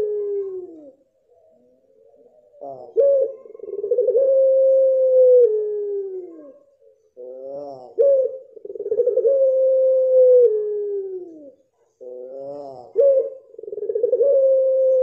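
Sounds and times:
dove cooing: 0.0 - 15.0.

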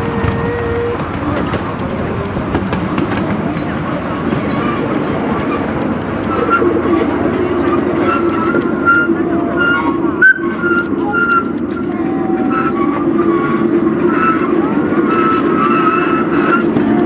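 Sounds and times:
train wheels on track: 0.0 - 17.0
high-pitched wheel squeaks: 5.5 - 17.0.

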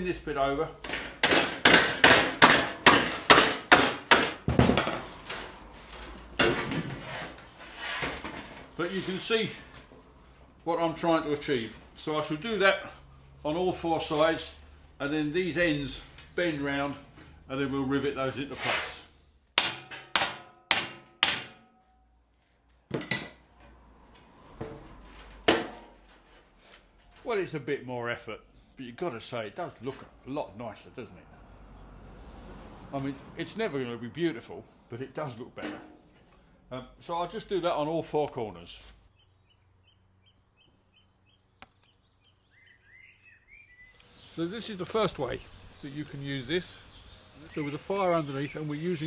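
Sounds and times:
hammer striking steel plate: 19.6 - 21.9, 25.5 - 25.9
loud metal clank: 25.4 - 26.0, 35.6 - 36.1.

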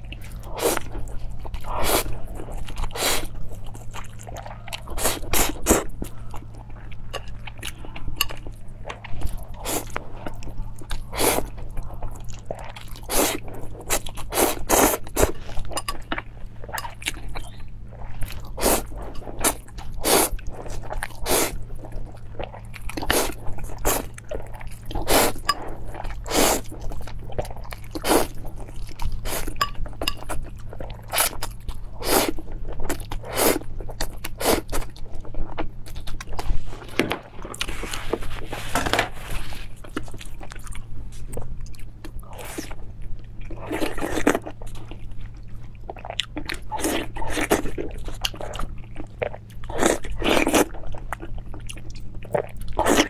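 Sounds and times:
wet chewing of noodles: 0.0 - 53.0
slurping: 17.4 - 21.6, 24.9 - 26.7.

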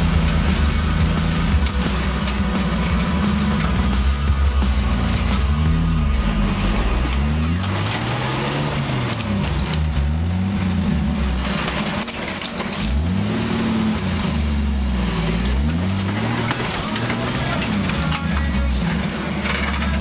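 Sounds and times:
engine revving under load: 0.0 - 20.0.

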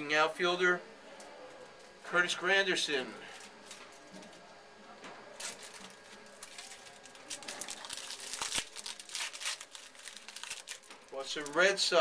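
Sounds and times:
trading cards and wrapper crinkling: 5.4 - 12.0.

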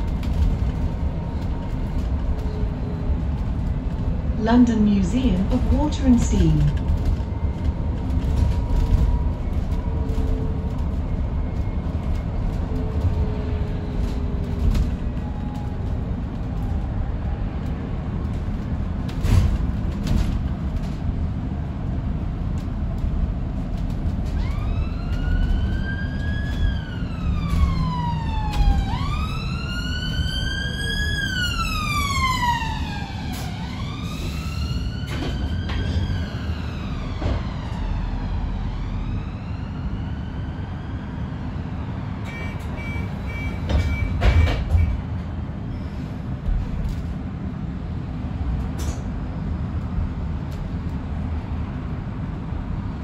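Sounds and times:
bus road rumble: 0.0 - 53.0
emergency siren wailing: 24.2 - 43.6.

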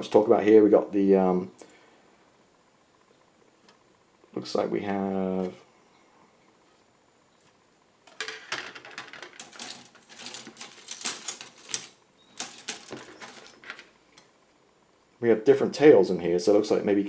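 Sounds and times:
plastic parts clicking and rattling: 8.1 - 13.9.

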